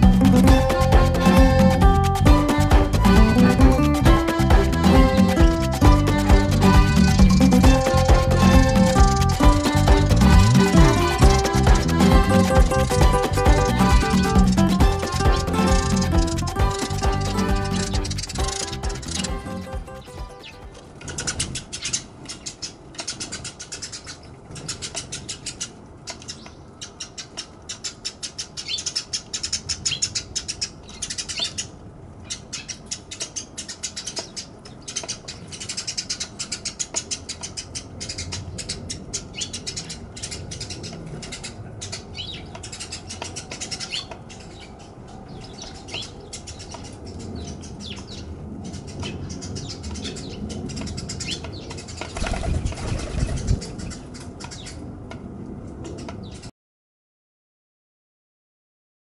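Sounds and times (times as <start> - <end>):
small birds chirping: 0.0 - 54.9
wing flutters: 51.9 - 54.3.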